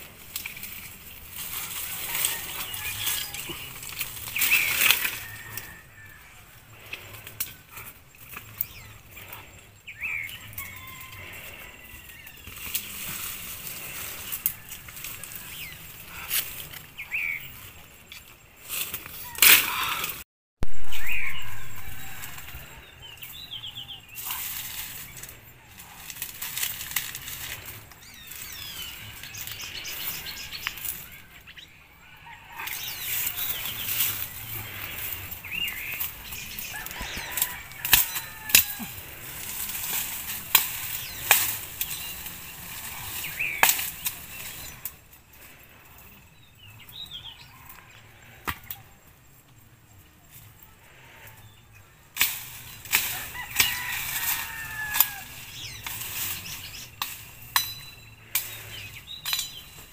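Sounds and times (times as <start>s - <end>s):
sticks rustling and snapping: 0.0s - 6.1s, 6.7s - 9.5s, 12.1s - 20.2s, 24.2s - 31.4s, 32.5s - 46.1s, 52.1s - 59.9s
birds chirping: 0.0s - 59.9s.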